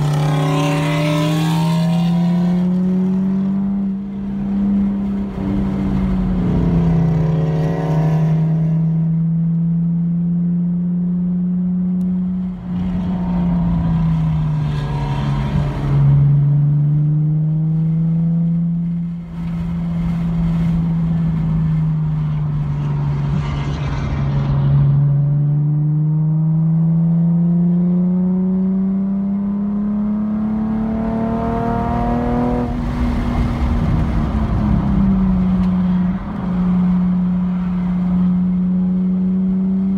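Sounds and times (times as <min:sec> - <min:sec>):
car engine from inside cabin: 0:00.0 - 0:23.7.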